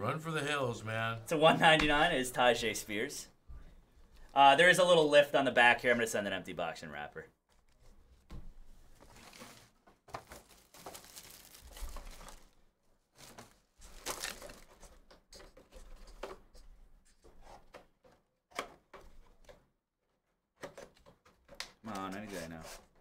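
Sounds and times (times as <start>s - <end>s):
foil wrappers crinkling: 9.1s - 12.6s, 13.2s - 14.8s.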